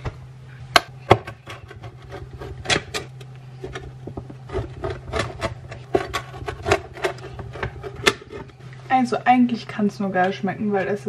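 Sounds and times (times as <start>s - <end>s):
steady low hum: 0.0s - 11.0s
pizza cutter crunching crust: 1.3s - 8.6s.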